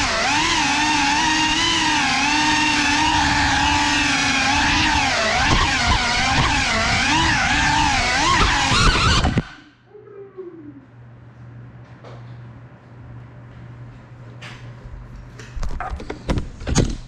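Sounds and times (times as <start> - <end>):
drone propellers whining: 0.0 - 9.7.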